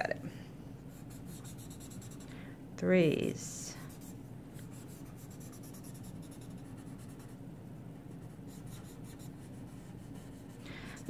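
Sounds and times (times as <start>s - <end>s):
steady low hum: 0.0s - 11.0s
scratchy rubbing on paper: 0.9s - 2.3s, 3.7s - 7.4s, 8.1s - 11.0s.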